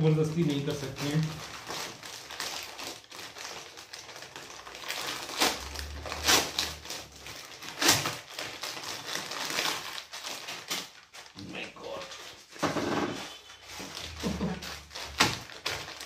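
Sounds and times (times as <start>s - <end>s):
plastic wrapping crinkling: 0.0s - 16.0s.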